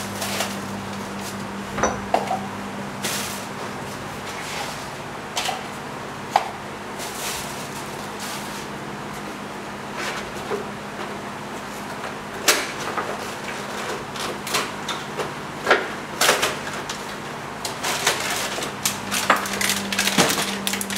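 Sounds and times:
steady low hum: 0:00.0 - 0:12.4.

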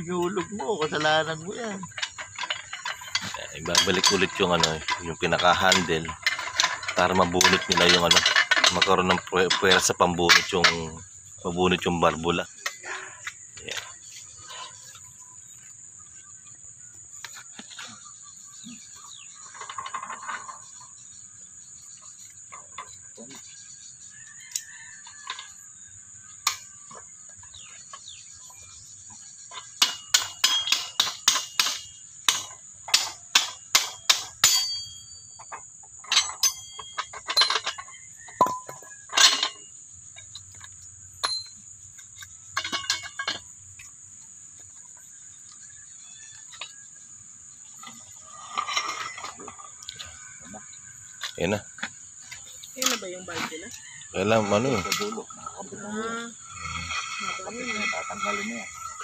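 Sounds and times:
ringing metal clanks: 0:00.0 - 0:15.4, 0:26.3 - 0:43.9, 0:45.4 - 0:55.5
crickets chirping: 0:00.0 - 0:59.0.

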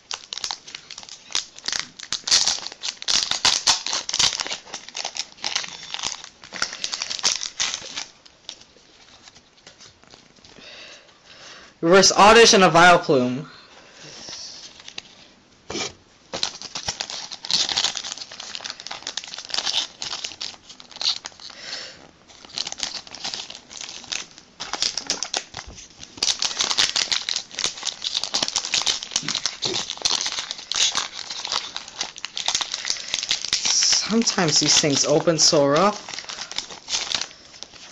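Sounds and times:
foil wrapper crinkling and tearing: 0:00.0 - 0:10.6, 0:14.2 - 0:15.2, 0:16.3 - 0:37.9.

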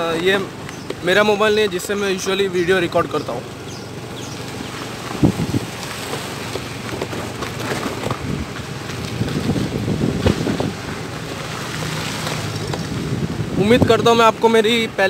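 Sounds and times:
road noise: 0:00.0 - 0:15.0
scooter engine: 0:00.0 - 0:15.0
wind buffeting microphone: 0:03.5 - 0:14.6.

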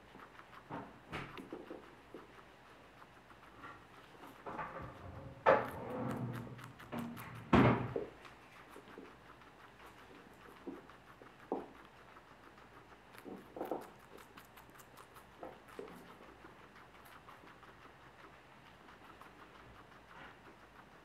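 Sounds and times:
guinea pig crunching and chewing: 0:00.0 - 0:21.0.

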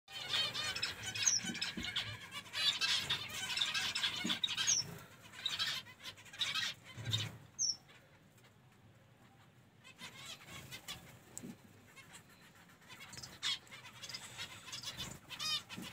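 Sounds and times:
finches chattering calls: 0:00.1 - 0:08.1, 0:12.0 - 0:15.9.

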